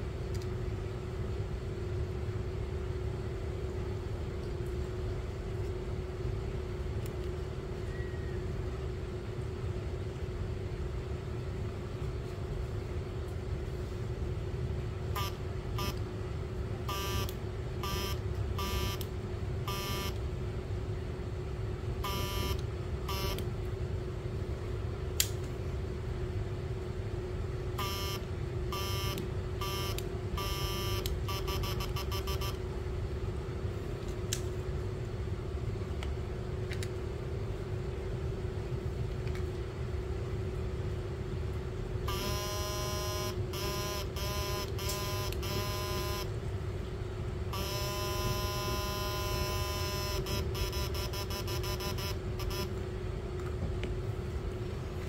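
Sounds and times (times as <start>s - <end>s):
steady electrical hum: 0.0s - 55.0s
high buzzing tones: 19.7s - 20.2s, 22.0s - 23.4s, 42.1s - 46.3s, 47.6s - 52.7s.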